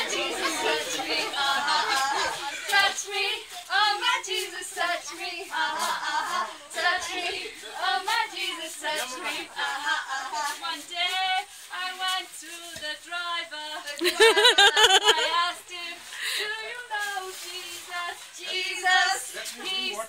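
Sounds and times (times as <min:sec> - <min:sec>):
women singing gospel unaccompanied: 0:00.0 - 0:20.0.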